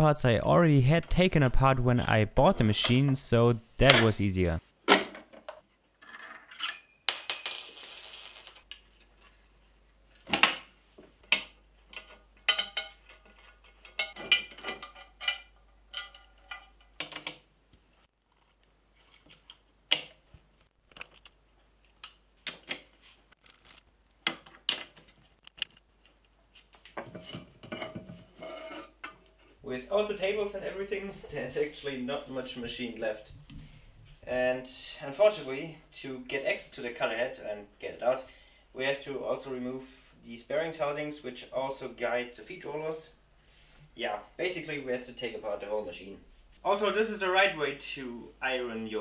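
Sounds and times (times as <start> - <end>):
metal table handling noise: 27.0 - 29.2.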